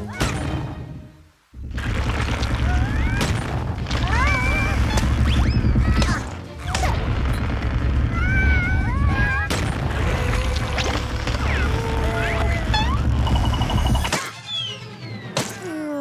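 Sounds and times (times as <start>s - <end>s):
squeaky chattering cartoon voices: 11.4s - 15.4s.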